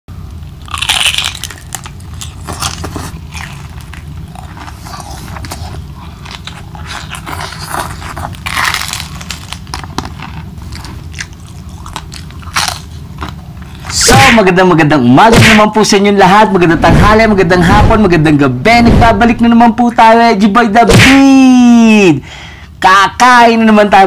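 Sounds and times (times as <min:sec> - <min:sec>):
steady low hum: 0:00.1 - 0:24.0
crunchy chewing: 0:00.5 - 0:14.0.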